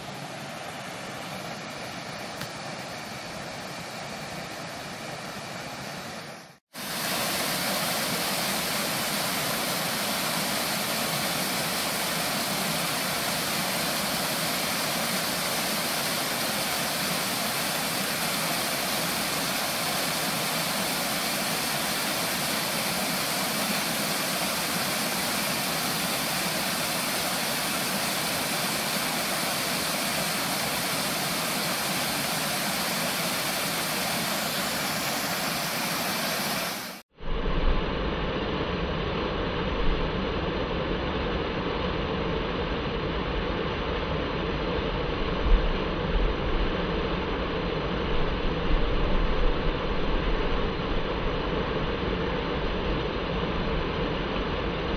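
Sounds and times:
waterfall rushing over rocks: 0:06.8 - 0:37.0.

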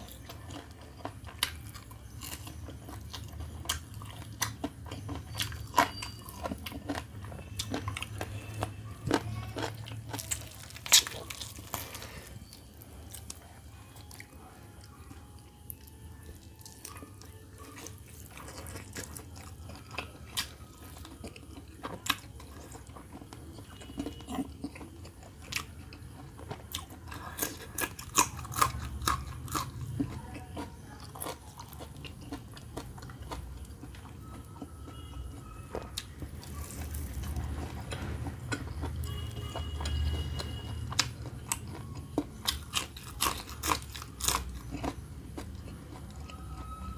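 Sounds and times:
person chewing food: 0:00.0 - 0:46.9
crunchy bites: 0:00.5 - 0:13.4, 0:37.9 - 0:45.7.

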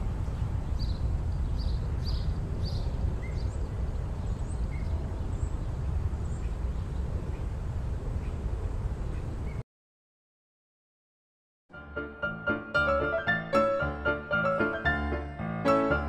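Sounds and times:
birds chirping: 0:00.2 - 0:07.6.

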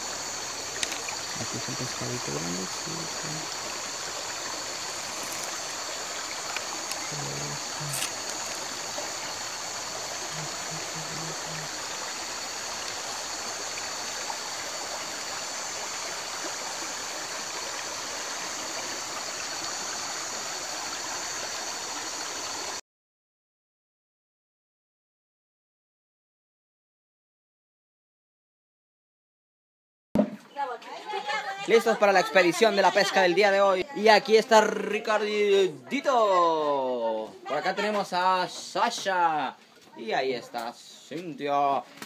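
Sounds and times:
creek running: 0:00.0 - 0:22.8, 0:30.9 - 0:40.8
high-pitched insect chorus: 0:00.0 - 0:22.8, 0:30.9 - 0:41.8.

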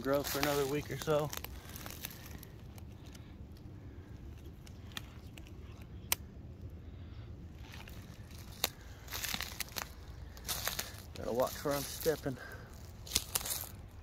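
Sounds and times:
footsteps crunching through dry leaves: 0:00.0 - 0:03.2, 0:07.6 - 0:14.0
steady low rumble: 0:00.0 - 0:14.0.

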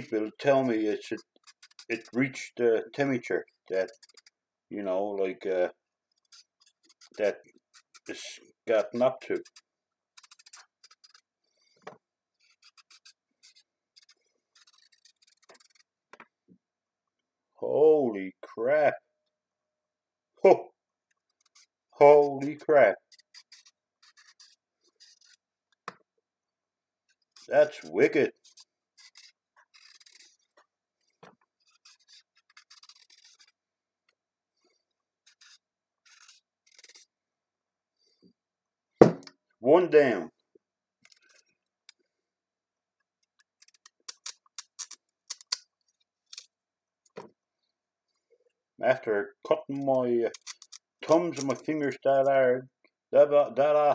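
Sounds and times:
knife scraping carrot peel: 0:00.0 - 0:04.4, 0:06.1 - 0:11.8, 0:12.4 - 0:15.9, 0:21.3 - 0:25.4, 0:27.1 - 0:33.6, 0:34.6 - 0:37.1, 0:43.5 - 0:46.5, 0:49.7 - 0:52.0.

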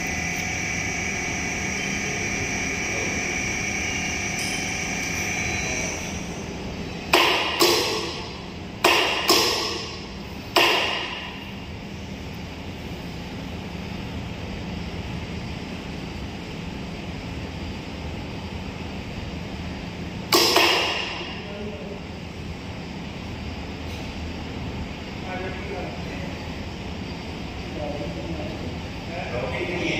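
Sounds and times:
ringing metal clanks: 0:04.3 - 0:05.2.

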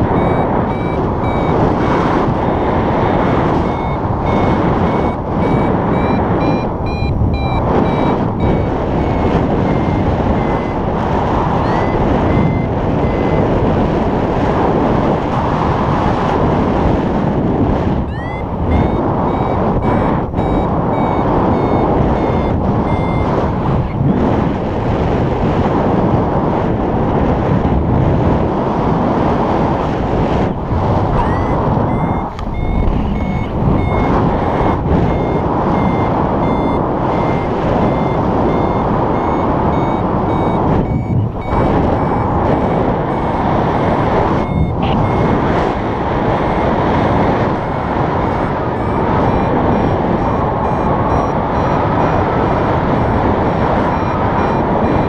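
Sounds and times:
rising electronic chirp: 0:00.0 - 0:01.6, 0:02.4 - 0:10.8, 0:11.6 - 0:13.4, 0:18.1 - 0:23.3, 0:31.2 - 0:45.4
variometer beeping: 0:00.0 - 0:26.3, 0:28.1 - 0:55.0
wind buffeting microphone: 0:00.0 - 0:55.0.

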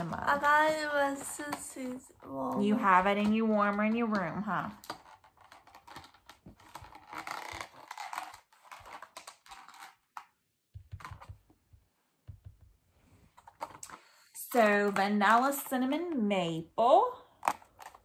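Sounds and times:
plastic packaging clicks and rustles: 0:02.6 - 0:11.5, 0:13.3 - 0:15.6, 0:17.4 - 0:18.0.

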